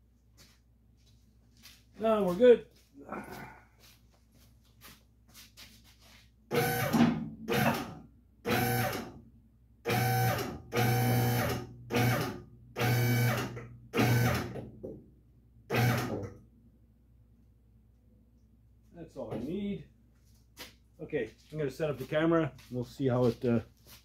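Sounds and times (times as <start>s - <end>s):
hydraulic pump motor bursts: 6.5s - 9.2s, 9.9s - 14.6s, 15.7s - 16.3s.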